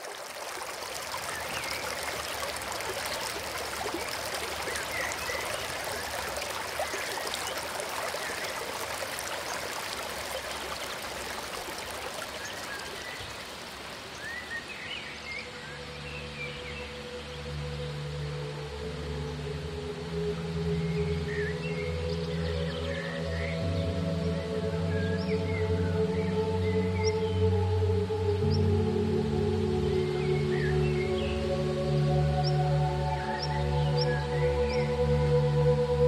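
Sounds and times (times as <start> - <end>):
stream water rushing: 0.0 - 23.6.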